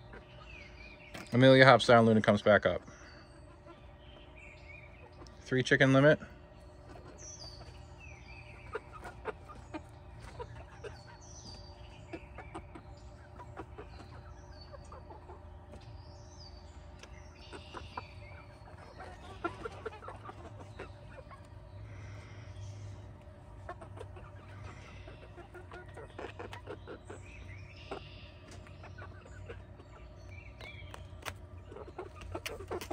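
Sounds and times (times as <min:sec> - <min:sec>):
hens clucking quietly: 0:00.0 - 0:32.9.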